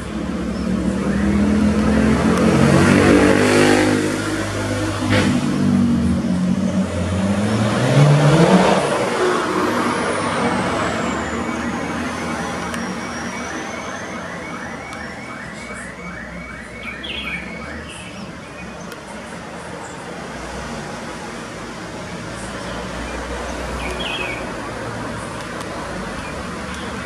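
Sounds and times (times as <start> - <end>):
motor vehicle passing: 0.0 - 14.6.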